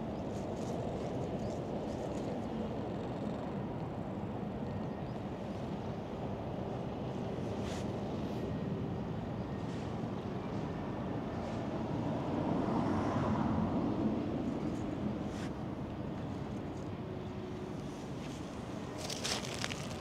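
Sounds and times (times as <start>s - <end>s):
road traffic rumble: 5.8s - 20.0s.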